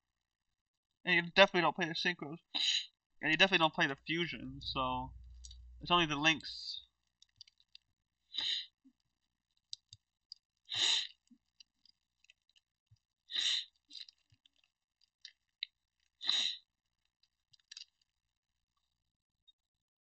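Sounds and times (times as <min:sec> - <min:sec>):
breaths or sniffs: 0:08.3 - 0:08.7, 0:10.7 - 0:11.2, 0:13.3 - 0:13.7, 0:16.2 - 0:16.6.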